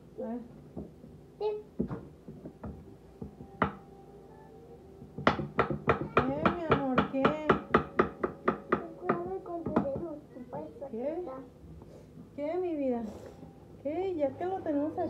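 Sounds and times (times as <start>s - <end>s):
knife knock on wooden board: 5.2s - 10.1s.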